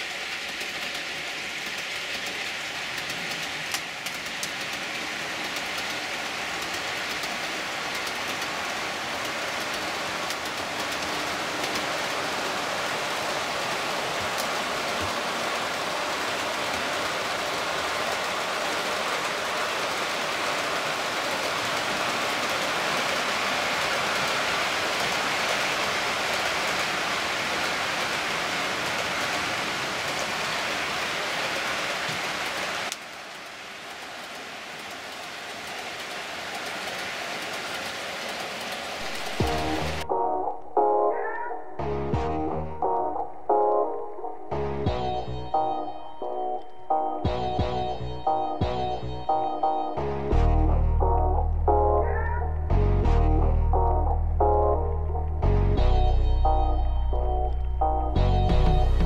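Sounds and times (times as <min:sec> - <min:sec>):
model train wheels rattling on rails: 0:00.0 - 0:30.3, 0:32.9 - 0:40.0.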